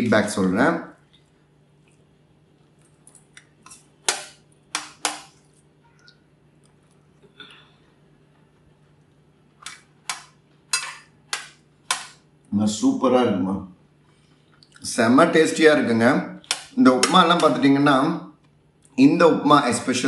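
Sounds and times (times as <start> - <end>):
spoon clinking on metal plate: 10.7 - 11.1.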